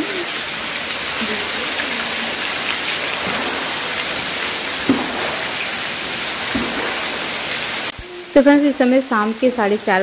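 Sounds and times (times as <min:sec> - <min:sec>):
heavy rain on pavement: 0:00.0 - 0:10.0.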